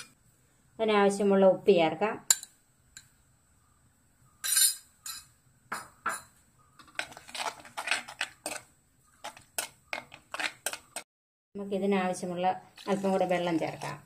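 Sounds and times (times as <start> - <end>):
spoon scraping clay pot: 6.1 - 11.1, 12.8 - 14.0.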